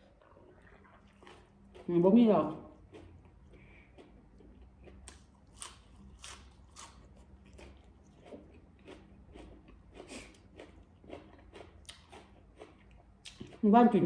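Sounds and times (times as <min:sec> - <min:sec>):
chewing crisp leafy greens: 0:00.0 - 0:14.0.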